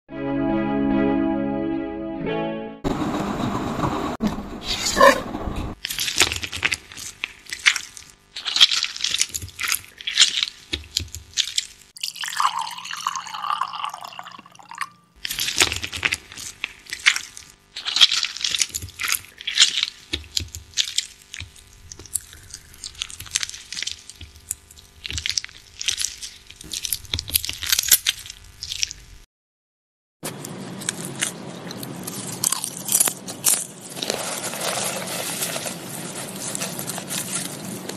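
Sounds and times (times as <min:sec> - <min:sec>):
wet squelching of kneaded meat and dough: 0:05.8 - 0:12.0, 0:15.2 - 0:29.2, 0:30.6 - 0:37.9.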